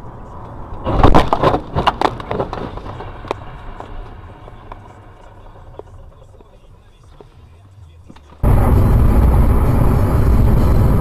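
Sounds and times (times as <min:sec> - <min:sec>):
low vehicle rumble: 0:00.0 - 0:11.0
car crash bangs and crunching: 0:00.8 - 0:04.2.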